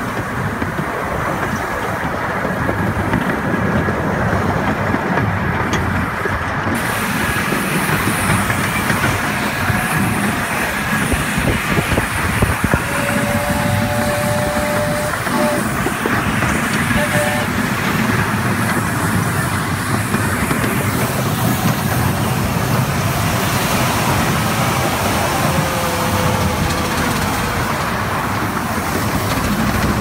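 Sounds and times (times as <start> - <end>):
steam hiss: 0.0 - 30.0
thin squealing tone: 12.7 - 15.8
miniature train wheels clattering: 25.4 - 30.0.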